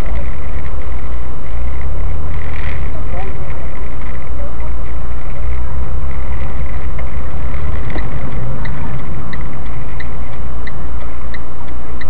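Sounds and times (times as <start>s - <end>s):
engine rumble and road noise: 0.0s - 12.0s
turn indicator ticking: 3.2s - 12.0s.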